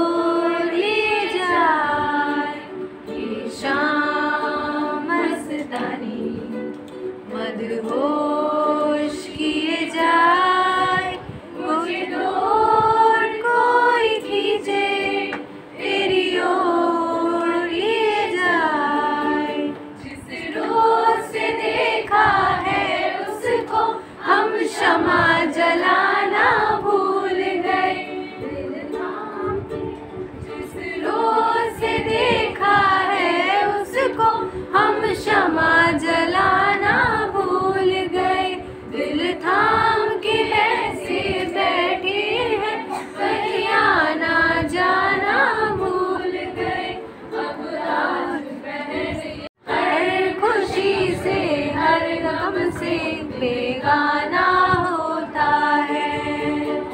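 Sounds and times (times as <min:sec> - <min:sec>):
people singing together: 0:00.0 - 0:56.9.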